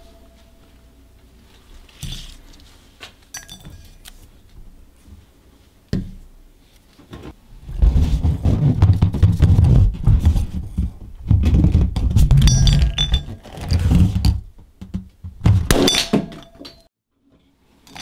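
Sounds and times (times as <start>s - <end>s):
balloon rubbed rumbling rustle: 7.3s - 12.4s
objects knocking and clinking: 12.3s - 13.5s, 15.6s - 16.9s.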